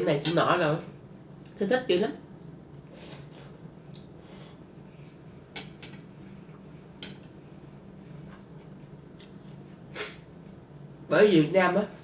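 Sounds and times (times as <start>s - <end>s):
faint low hum: 0.0s - 12.0s
slurping noodles: 2.9s - 3.6s.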